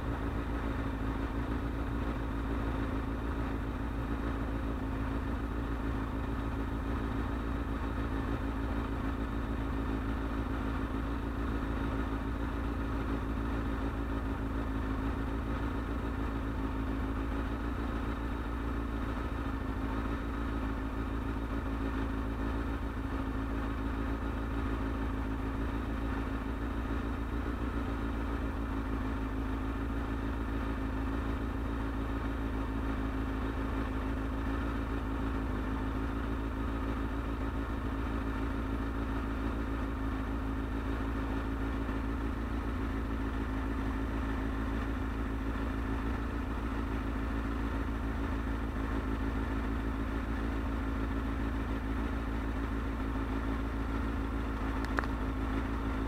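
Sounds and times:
motorcycle engine idling: 0.0 - 56.0.

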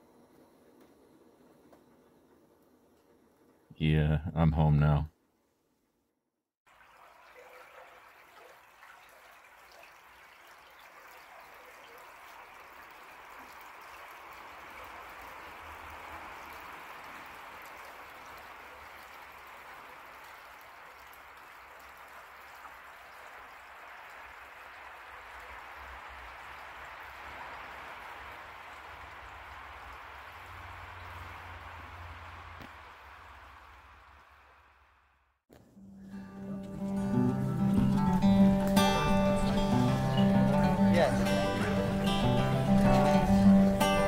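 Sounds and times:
creek trickling over stones: 6.7 - 34.5, 36.7 - 44.0.

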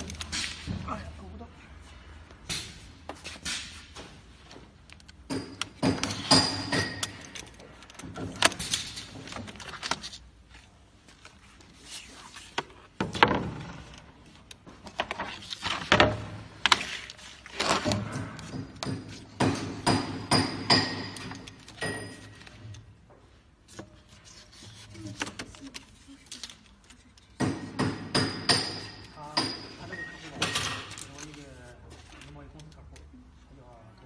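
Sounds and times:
plastic film being cut and peeled: 16.6 - 18.1.

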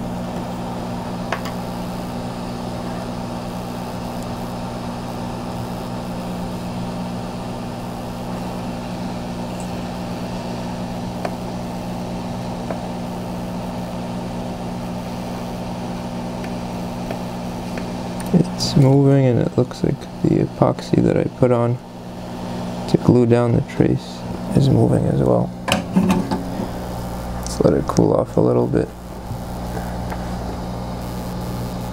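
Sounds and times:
hot air station blowing: 0.0 - 31.9.

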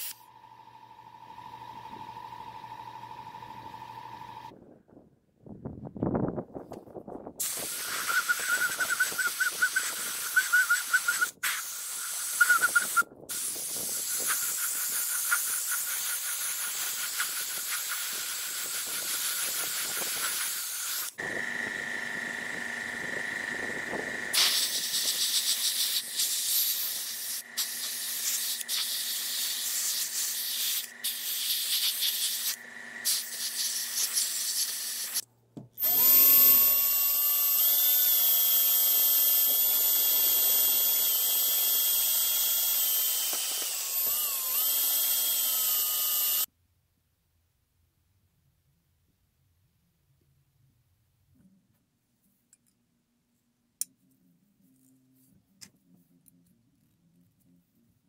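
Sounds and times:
power drill whine: 0.0 - 4.5, 7.4 - 35.2, 35.8 - 46.5
paint spraying hiss: 24.3 - 35.2.

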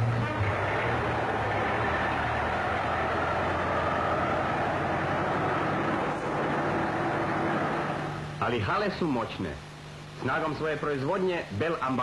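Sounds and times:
factory machinery running: 0.0 - 8.6.

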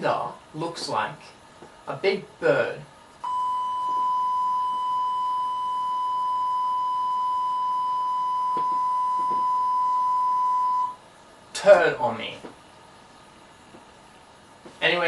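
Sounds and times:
steady electronic beep: 3.2 - 11.0.

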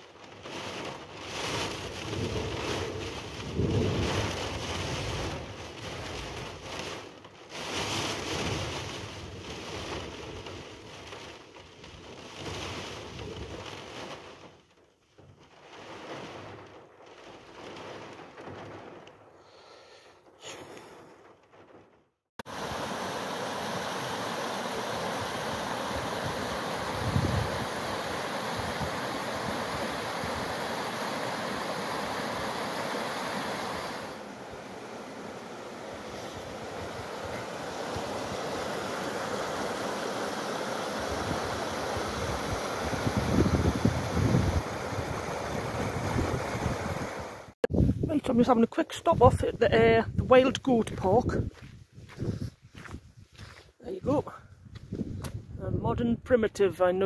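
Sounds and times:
stream rushing over stones: 22.4 - 47.6
strong wind gusting: 24.2 - 53.5, 54.4 - 56.2.

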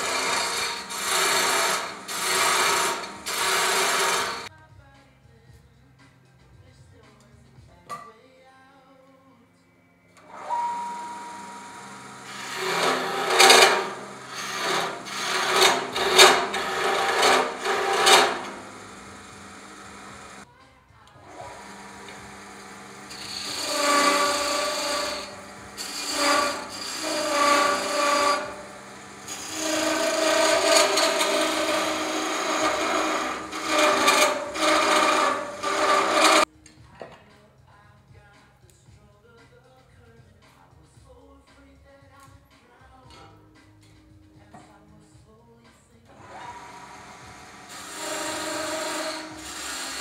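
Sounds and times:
chisel scraping wood on lathe: 0.0 - 4.5, 10.6 - 20.4, 21.4 - 36.5, 46.4 - 50.0.

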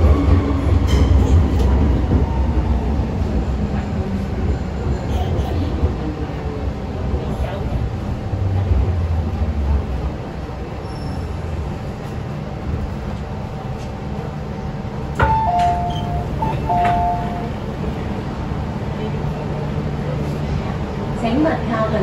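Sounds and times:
train rumbling to a stop: 0.0 - 22.0
train doors opening clunk: 15.1 - 17.6
two-tone door chime: 15.2 - 17.5.

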